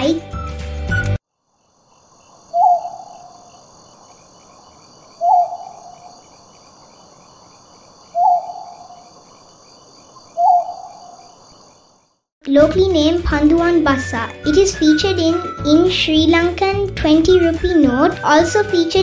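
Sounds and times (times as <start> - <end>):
pulsing insect trill: 1.3 - 12.3
owl hooting: 1.9 - 7.0, 8.0 - 9.2, 10.1 - 11.8.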